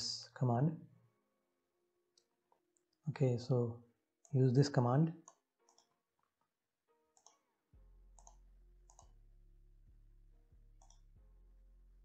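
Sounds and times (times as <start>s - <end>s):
faint computer clicks: 5.2s - 6.3s, 7.1s - 7.4s.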